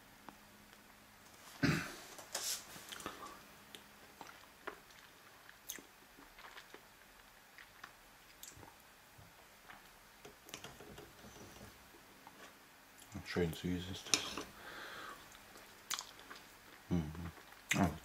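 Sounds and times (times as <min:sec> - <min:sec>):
person chewing: 0:02.9 - 0:08.8, 0:15.2 - 0:17.9.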